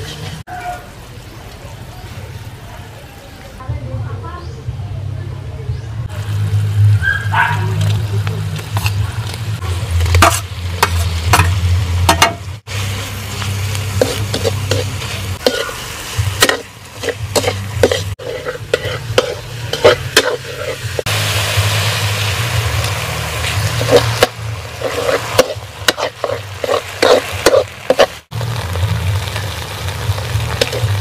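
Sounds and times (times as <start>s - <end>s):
metal ladle scraping in a wok: 0.0s - 0.4s, 8.6s - 28.3s, 30.5s - 31.0s
food sizzling: 0.0s - 3.5s, 6.1s - 31.0s.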